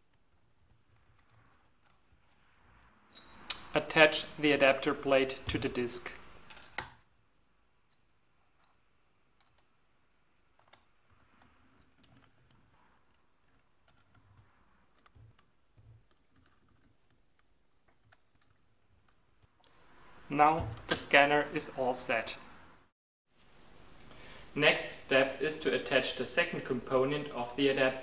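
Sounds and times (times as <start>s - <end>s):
metal parts clicking and tapping: 0.0s - 3.6s, 7.9s - 9.8s, 10.5s - 19.7s.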